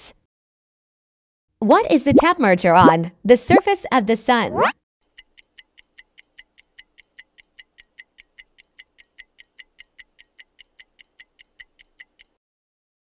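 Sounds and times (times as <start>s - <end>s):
fast clock-like ticks: 5.0s - 12.4s.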